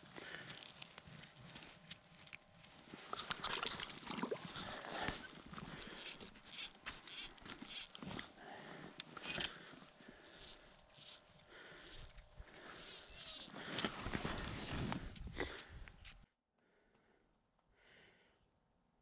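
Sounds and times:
camera rubbing on jacket: 0:12.8 - 0:15.2.

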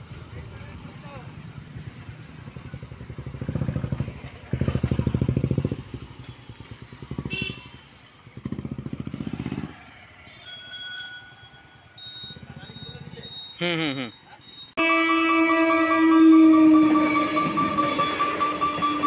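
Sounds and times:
motorcycles passing: 0:00.0 - 0:14.4, 0:15.8 - 0:19.0
high beep: 0:11.5 - 0:14.8, 0:17.4 - 0:19.0.

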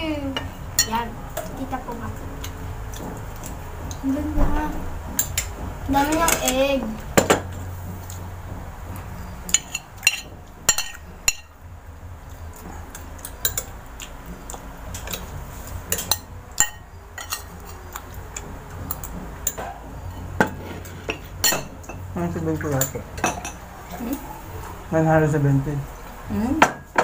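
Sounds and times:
steady low hum: 0:00.0 - 0:27.0
cutlery clicks and clinks: 0:12.6 - 0:14.1, 0:15.9 - 0:17.8.

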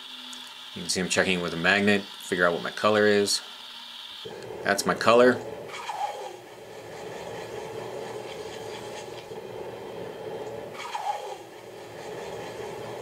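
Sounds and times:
hot steel sizzling in quench: 0:00.0 - 0:09.4.

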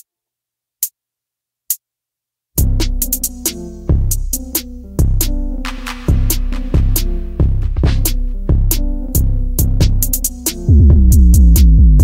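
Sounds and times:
electronic music with bass beat: 0:02.6 - 0:12.0.

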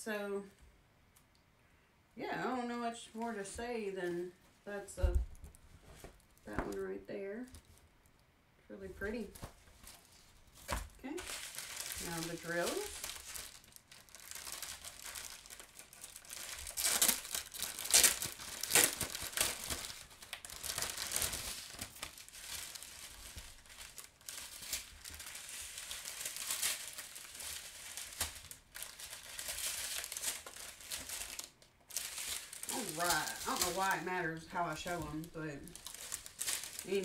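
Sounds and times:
plastic wrapping crinkling: 0:04.2 - 0:08.2, 0:09.0 - 0:37.0.

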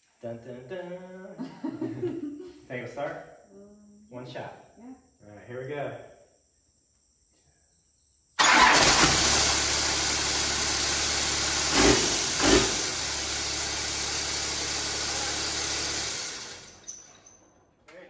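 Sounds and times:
diesel engine starting and revving: 0:08.4 - 0:16.8.

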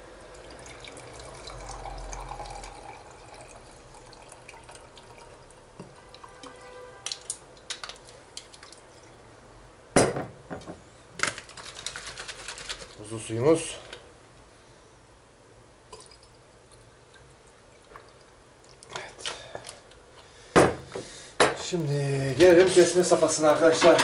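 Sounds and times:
liquid pouring into glass: 0:00.2 - 0:06.6, 0:15.9 - 0:18.3
glass bottle knocking on counter: 0:10.0 - 0:10.8.

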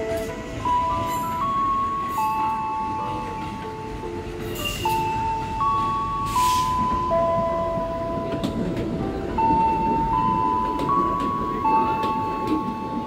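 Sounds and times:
electric train rumbling: 0:00.0 - 0:13.0
simple electronic melody: 0:00.0 - 0:13.0
hiss of air: 0:06.3 - 0:06.8.

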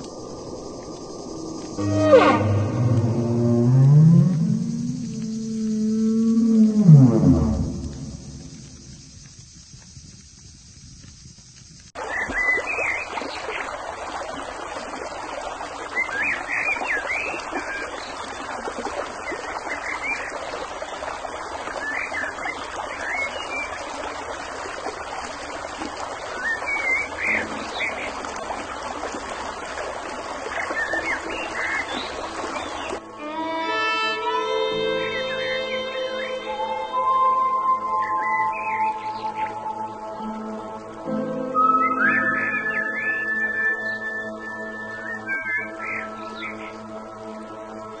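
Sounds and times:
stream water over rocks: 0:00.0 - 0:05.2, 0:11.6 - 0:33.8, 0:36.5 - 0:48.0
music with sustained tones: 0:00.8 - 0:08.8, 0:31.0 - 0:48.0.

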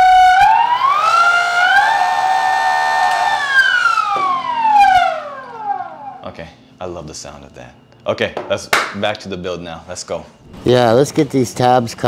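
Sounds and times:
electric motor whine: 0:00.0 - 0:06.2.

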